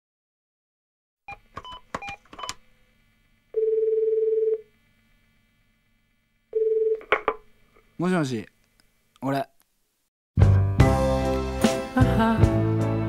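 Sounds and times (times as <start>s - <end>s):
telephone keypad dialing beeps: 1.3s - 2.6s
telephone ringback tone: 3.6s - 4.6s, 6.6s - 7.0s.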